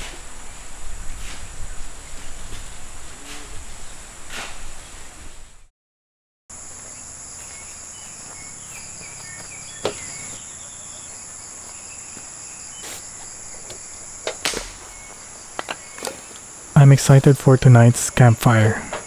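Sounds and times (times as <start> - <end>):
insects buzzing: 6.5 - 19.0.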